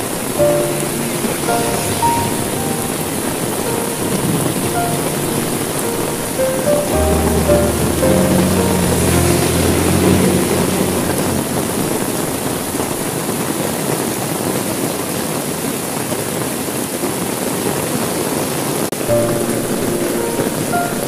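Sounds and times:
heavy rain on window glass: 0.0s - 21.0s
low rumble: 0.1s - 13.4s.

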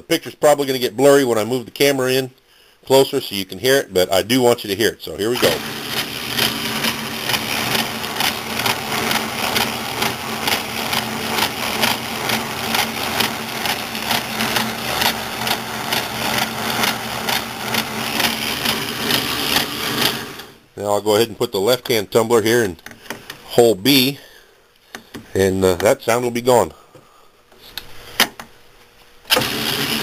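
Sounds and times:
hum of lathe gearing: 5.2s - 20.6s, 29.3s - 30.0s.

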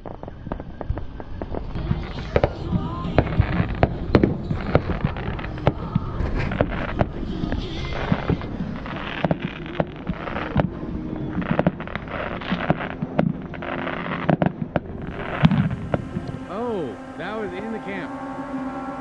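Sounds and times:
fireworks bangs and crackling: 0.0s - 18.1s.

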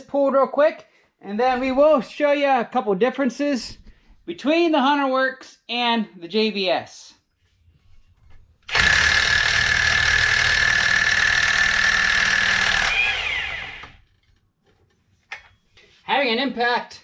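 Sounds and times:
impact wrench hammering: 8.7s - 14.0s.

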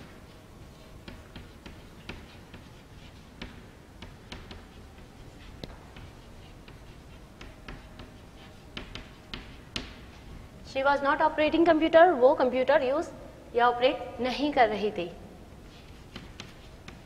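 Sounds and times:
chalk tapping and scratching: 0.0s - 10.5s, 15.6s - 17.0s.

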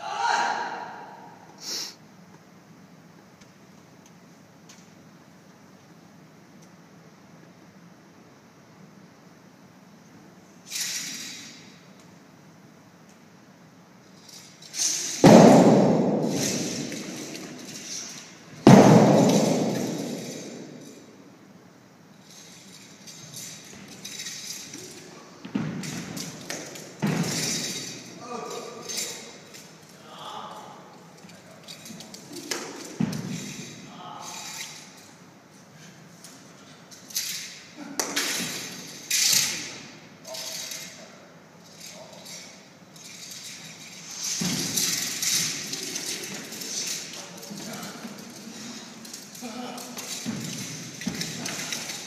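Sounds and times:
faint movement sounds: 14.0s - 52.0s.

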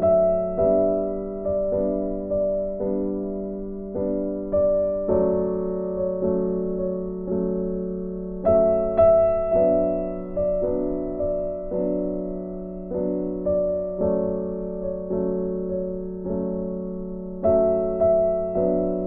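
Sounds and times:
slow soft piano music: 0.0s - 19.0s.

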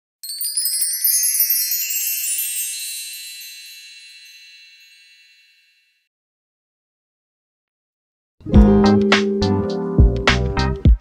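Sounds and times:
bright tinkling chime: 0.2s - 6.1s.

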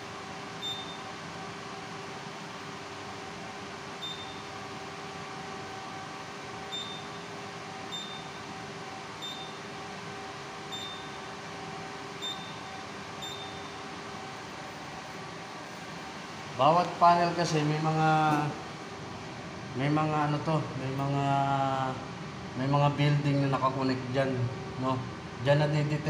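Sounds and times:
equipment hum: 0.0s - 26.0s
keypad beeping: 0.6s - 1.0s, 4.0s - 4.4s, 6.7s - 7.2s, 7.9s - 8.3s, 9.2s - 9.6s, 10.7s - 11.2s, 12.2s - 13.8s.

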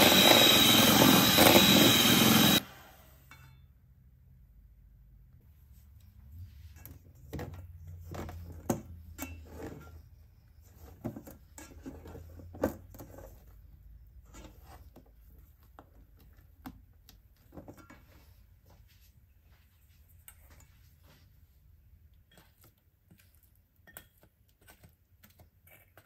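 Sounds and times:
spatula scraping batter in bowl: 7.9s - 15.8s, 22.1s - 26.0s.

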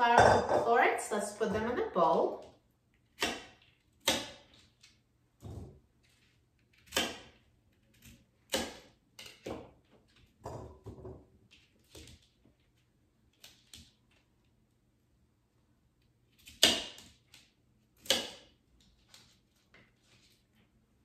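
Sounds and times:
knife chopping on plastic board: 3.1s - 4.6s, 6.8s - 9.7s, 16.4s - 17.2s, 18.0s - 18.5s.

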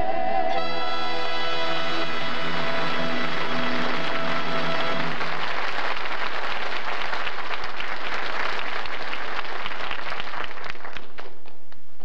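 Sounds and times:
held music chord: 0.0s - 5.4s
crowd applauding: 1.4s - 11.7s.

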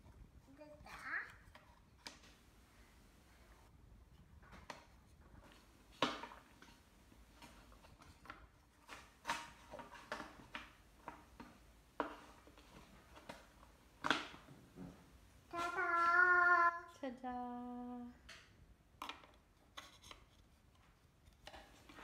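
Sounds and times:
wooden puzzle pieces knocking: 5.6s - 15.0s.

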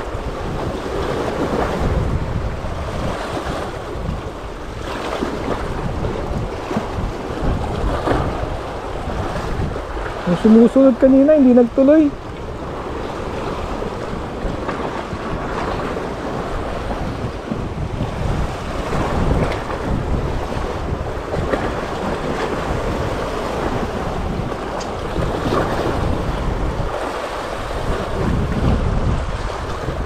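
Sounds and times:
sea waves: 0.0s - 30.0s
wind buffeting microphone: 0.0s - 30.0s.

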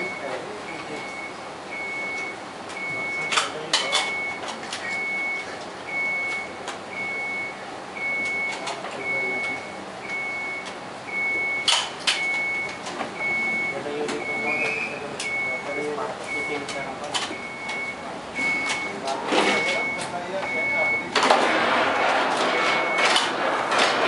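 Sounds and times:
electronic warning beeper: 0.0s - 24.0s.

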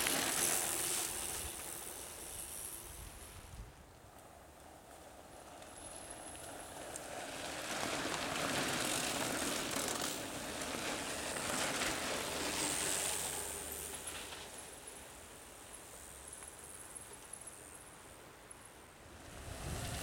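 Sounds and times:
bike tyres rolling over sand: 0.0s - 3.5s, 4.2s - 20.0s.

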